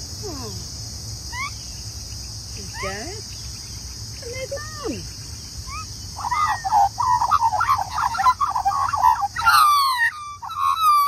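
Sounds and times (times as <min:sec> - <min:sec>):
magpie warbling: 0:05.6 - 0:11.0.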